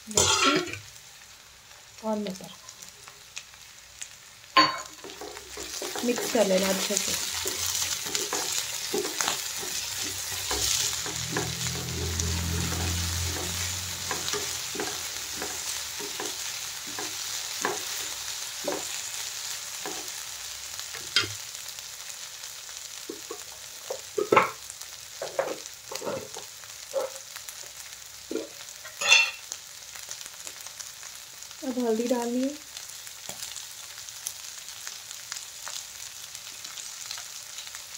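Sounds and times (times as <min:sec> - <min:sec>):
vegetables sizzling in oil: 0:00.0 - 0:37.9
spatula scraping and knocking pan: 0:04.6 - 0:19.0, 0:25.2 - 0:27.2.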